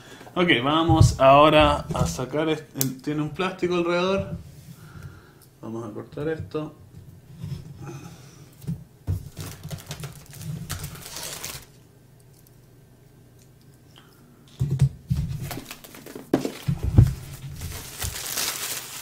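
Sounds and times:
plastic wrap crinkling: 9.2 - 11.8, 15.2 - 19.0
blade scratching plastic film: 9.4 - 11.7.

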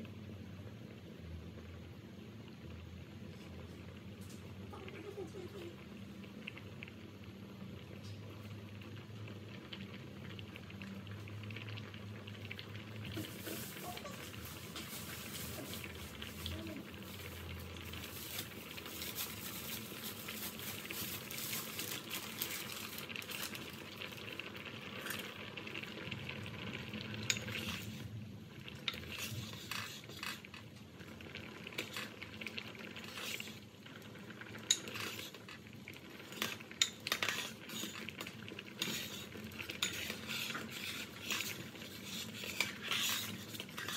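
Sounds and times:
pot boiling and bubbling: 0.0 - 43.9
metal ladle scraping pot: 27.2 - 28.1, 28.8 - 30.6, 31.7 - 32.2, 32.8 - 33.6, 34.6 - 43.9.

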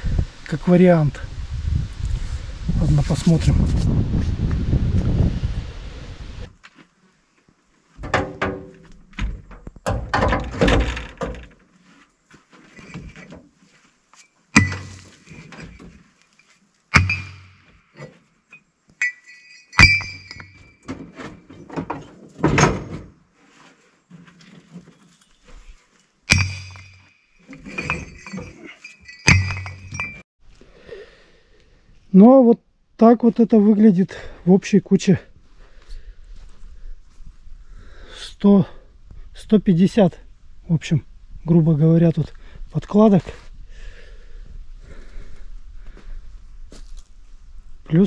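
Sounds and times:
metal plates clanking onto scrap pile: 26.3 - 30.2.

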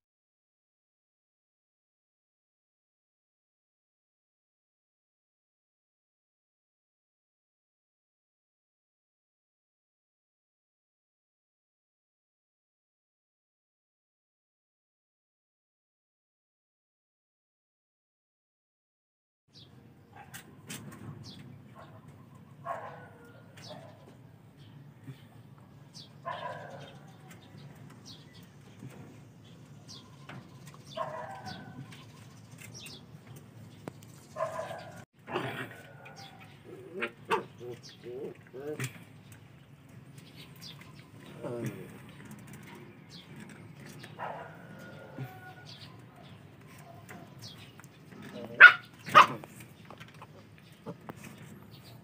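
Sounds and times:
puppy barking: 21.8 - 24.1, 26.2 - 27.3, 30.9 - 31.9, 34.4 - 37.7, 44.2 - 45.5, 48.3 - 49.5.

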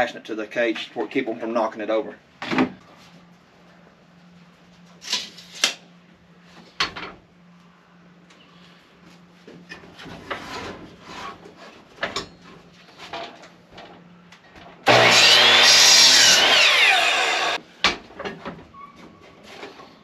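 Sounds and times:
miter saw cutting wood: 14.8 - 17.6.

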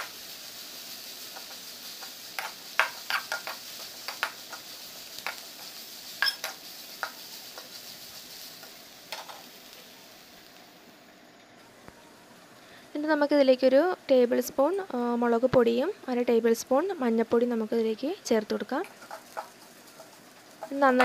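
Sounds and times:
vegetables sizzling in hot oil: 0.0 - 21.0
spoon clinking and scraping pan: 1.4 - 4.6, 5.2 - 7.8, 18.8 - 20.8.

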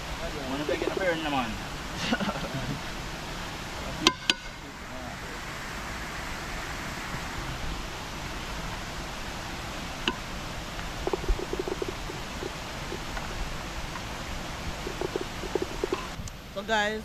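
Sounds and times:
outdoor hiss: 0.0 - 17.0
sharp clicks: 14.9 - 16.4.

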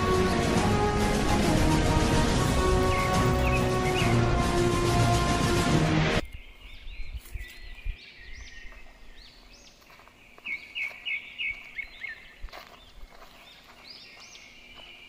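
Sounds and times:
background music: 0.0 - 6.2
small birds chirping: 2.7 - 4.3, 6.2 - 15.0.

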